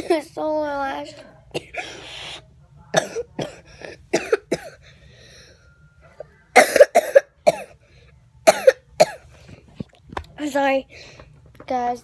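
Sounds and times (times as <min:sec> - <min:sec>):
girl coughing: 0:01.5 - 0:02.3, 0:02.9 - 0:04.9, 0:06.5 - 0:07.8, 0:08.4 - 0:09.3.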